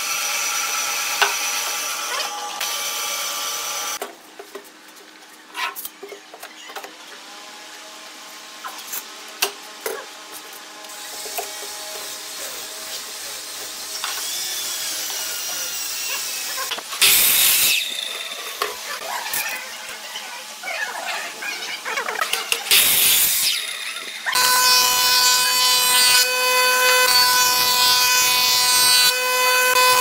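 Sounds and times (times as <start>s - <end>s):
miter saw cutting board: 0.0s - 4.0s, 10.9s - 20.6s, 22.2s - 30.0s.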